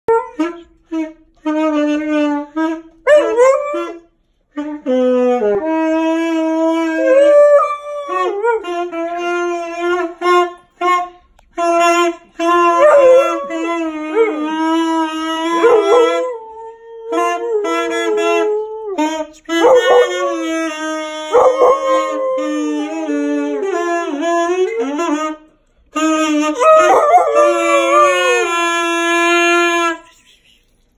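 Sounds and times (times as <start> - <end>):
saxophone long notes: 0.1 - 30.3
husky howling: 6.2 - 8.7, 12.6 - 19.0, 19.6 - 23.8, 26.6 - 28.5.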